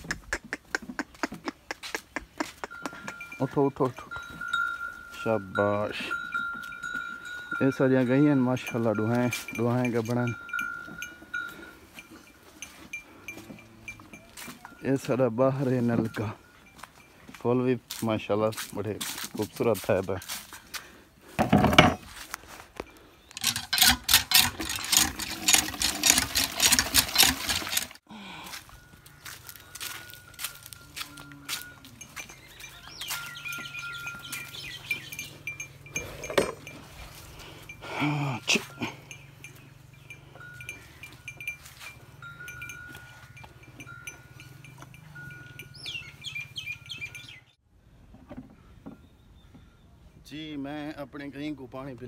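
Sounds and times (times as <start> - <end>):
birds chirping: 0.0 - 18.3, 22.8 - 23.8, 28.5 - 47.6, 48.5 - 50.8
calf drinking from bucket: 23.4 - 28.0.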